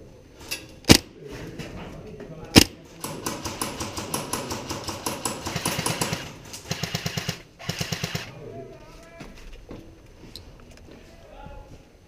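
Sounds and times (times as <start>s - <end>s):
airsoft rifle full-auto bursts: 2.6s - 8.3s.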